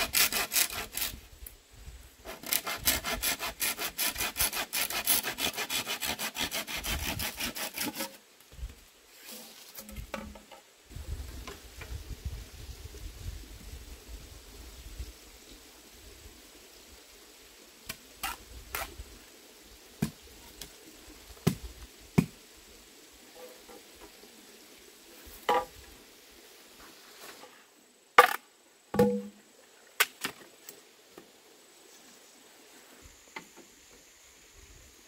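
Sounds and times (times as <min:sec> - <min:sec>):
bamboo poles knocking: 0:09.9 - 0:10.6, 0:25.5 - 0:25.8, 0:28.2 - 0:29.4.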